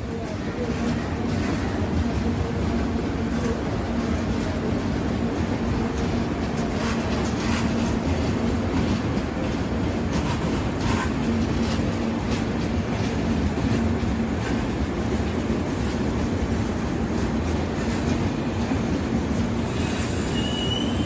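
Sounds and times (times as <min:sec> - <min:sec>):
train wheels rumbling on rail: 0:00.0 - 0:21.0
wheels clattering over rail joints: 0:00.6 - 0:16.3.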